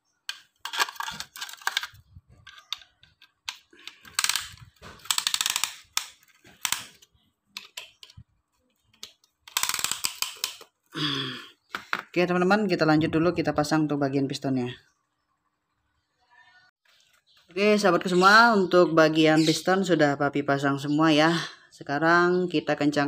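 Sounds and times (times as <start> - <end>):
ratchet clicking: 3.9 - 7.0, 9.5 - 10.6.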